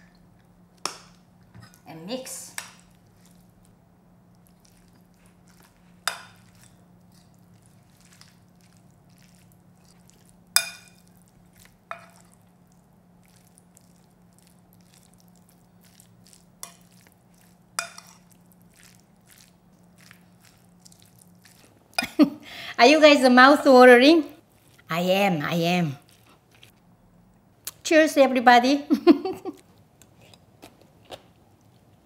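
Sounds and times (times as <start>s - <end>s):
soft stirring: 0.0s - 22.1s, 24.3s - 26.8s
metal spoon clinking ceramic bowl: 10.6s - 11.0s, 17.8s - 18.2s.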